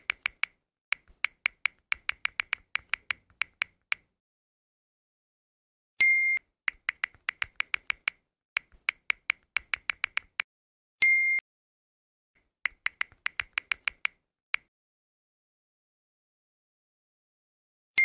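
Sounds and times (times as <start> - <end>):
touchscreen key clicks: 0.0 - 4.1, 6.7 - 10.4, 12.7 - 14.7.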